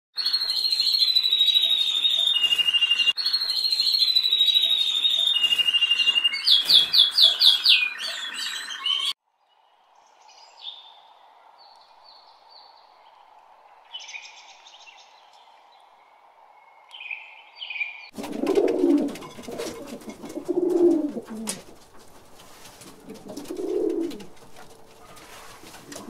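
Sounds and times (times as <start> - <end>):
canary singing trills: 0.2 - 9.2.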